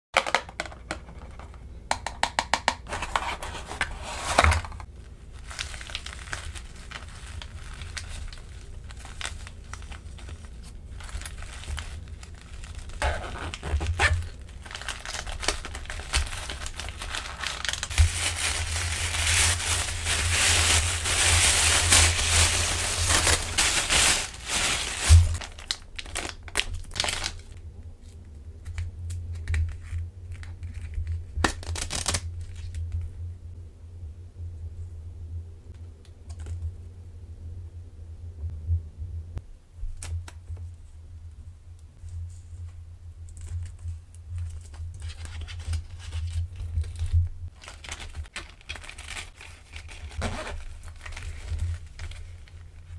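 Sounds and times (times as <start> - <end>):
plastic and paper crinkling: 2.9 - 27.6, 43.3 - 52.9.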